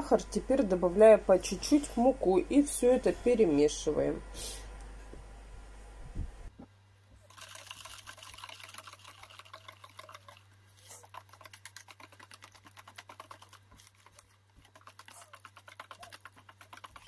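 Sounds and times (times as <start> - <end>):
low steady hum: 0.0 - 17.0
whisk beating batter in bowl: 7.3 - 17.0.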